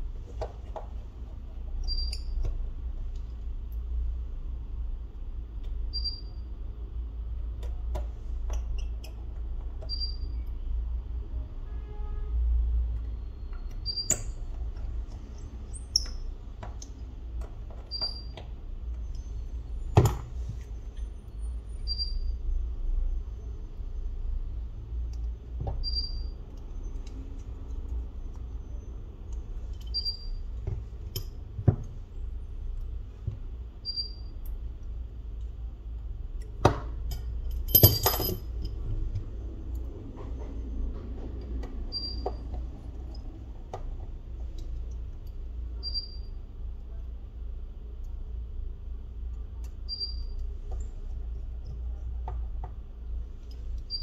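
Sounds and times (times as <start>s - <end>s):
tools tapping and clicking: 7.4s - 10.2s, 13.5s - 21.0s, 29.2s - 32.0s, 36.3s - 46.1s, 49.3s - 54.0s.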